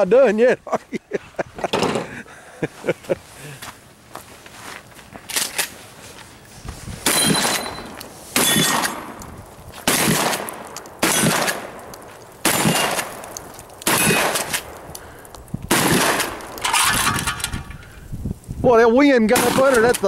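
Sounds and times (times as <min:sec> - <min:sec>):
gunshots with echo: 0:07.0 - 0:09.2, 0:09.9 - 0:11.8, 0:13.9 - 0:14.6, 0:15.7 - 0:16.5.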